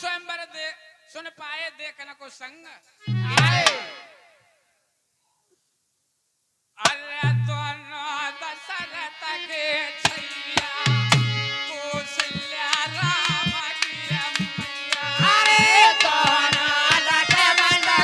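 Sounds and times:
harmonium chords: 0:03.0 - 0:04.0, 0:07.2 - 0:18.0
hand drum rhythm: 0:03.1 - 0:03.8, 0:10.1 - 0:18.0.

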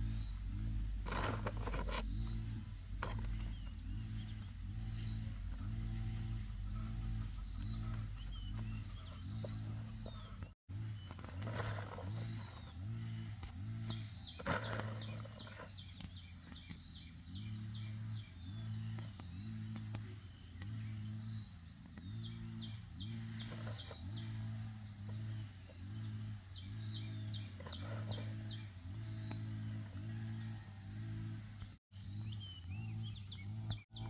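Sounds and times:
low hum: 0:00.0 - 0:16.4
small birds chirping: 0:00.0 - 0:34.0.

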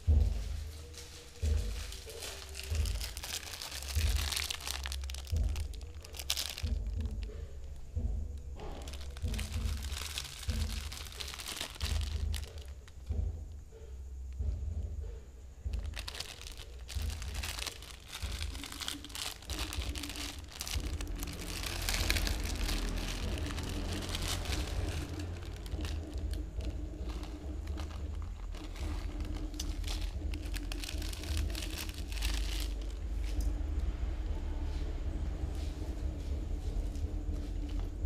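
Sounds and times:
low rumble: 0:00.0 - 0:38.0
plastic packet crinkling and tearing: 0:01.0 - 0:07.3, 0:08.6 - 0:13.0, 0:15.8 - 0:33.4.

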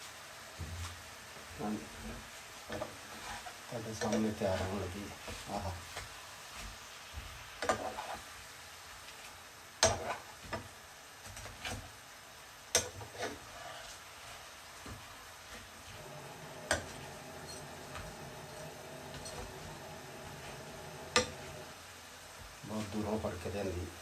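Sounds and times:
fish sizzling in oil: 0:00.0 - 0:24.0
metal utensils scraping a pan: 0:07.6 - 0:08.3, 0:09.8 - 0:10.3, 0:12.8 - 0:13.8, 0:16.5 - 0:21.6.

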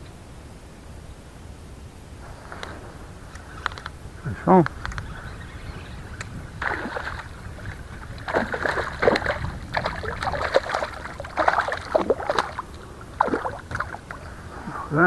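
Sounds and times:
fish splashing at water surface: 0:06.6 - 0:14.3.

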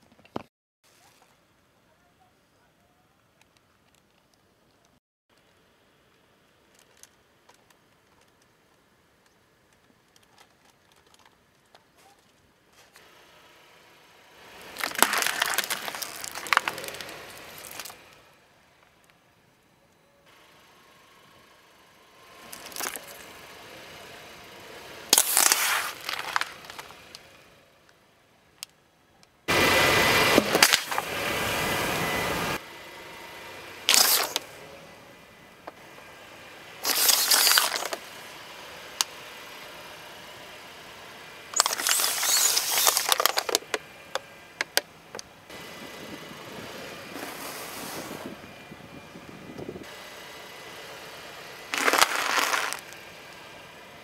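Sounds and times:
tyre crushing plastic bottles: 0:14.8 - 0:18.0, 0:22.6 - 0:23.2, 0:25.1 - 0:27.0, 0:30.4 - 0:31.1, 0:33.9 - 0:34.4, 0:36.8 - 0:38.0, 0:41.6 - 0:44.8, 0:51.8 - 0:53.0.

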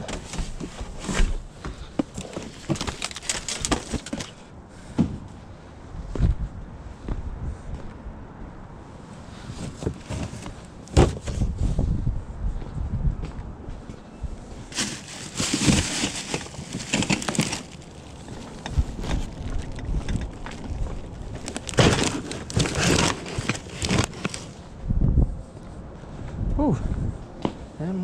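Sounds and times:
rustling and crinkling: 0:00.0 - 0:05.2, 0:09.3 - 0:11.9, 0:14.5 - 0:24.7.

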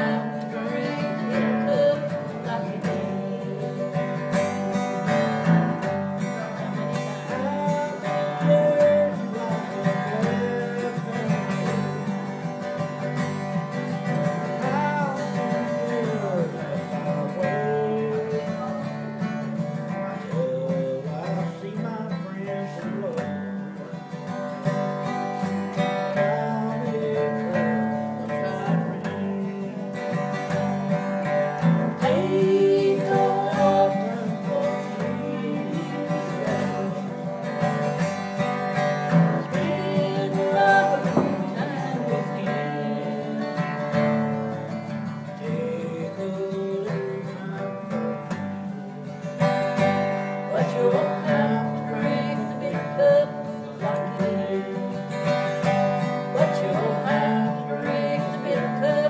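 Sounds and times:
man singing: 0:00.0 - 0:24.3, 0:25.0 - 0:59.0
acoustic guitar: 0:00.0 - 0:59.0.

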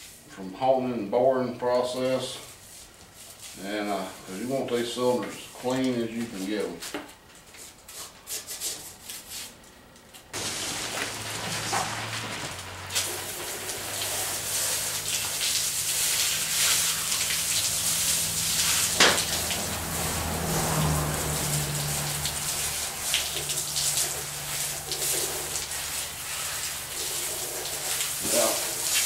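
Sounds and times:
hose water spattering on metal: 0:10.4 - 0:29.0.

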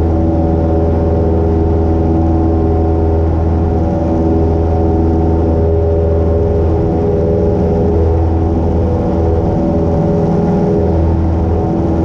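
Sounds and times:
propeller plane engine drone: 0:00.0 - 0:12.0.

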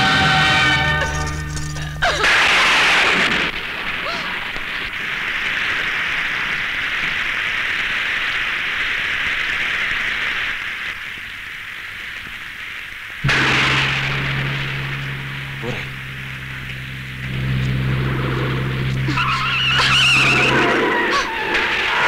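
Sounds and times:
heavy rain hissing: 0:00.0 - 0:22.0
woman crying: 0:01.8 - 0:02.3.

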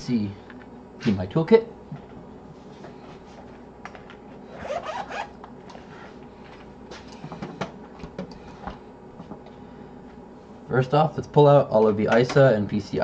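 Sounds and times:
zipper pulled open: 0:04.5 - 0:05.4.

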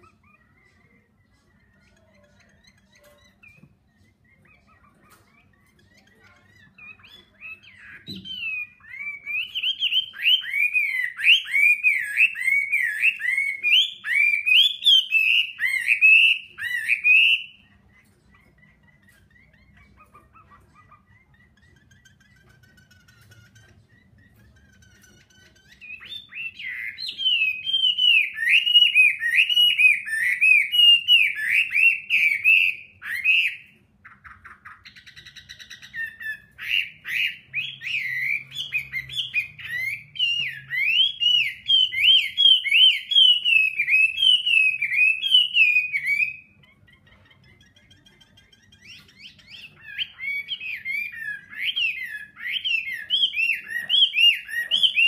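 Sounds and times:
buzzy bird rasp: 0:00.0 - 0:14.5, 0:15.1 - 0:32.4
bird singing whistled phrases: 0:06.8 - 0:17.6, 0:25.7 - 0:33.7, 0:34.9 - 0:46.6.

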